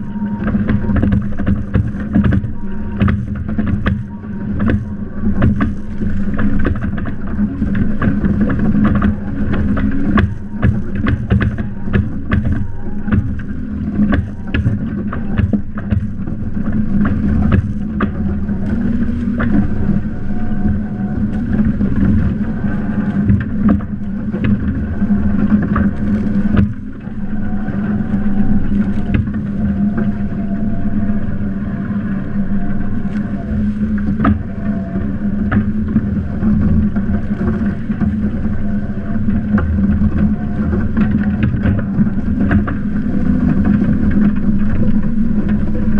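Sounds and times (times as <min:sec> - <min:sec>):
steady low hum: 0:00.0 - 0:45.9
water rushing along hull: 0:00.0 - 0:45.9
sharp taps and knocks: 0:08.0 - 0:13.5.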